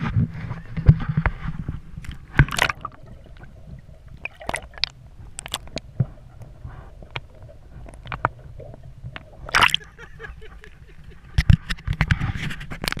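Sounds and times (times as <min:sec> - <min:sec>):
water sloshing and gurgling: 0:00.0 - 0:13.0
splashes and knocks: 0:00.8 - 0:06.2, 0:07.9 - 0:10.0
loud splash: 0:02.4 - 0:03.0, 0:09.5 - 0:09.9.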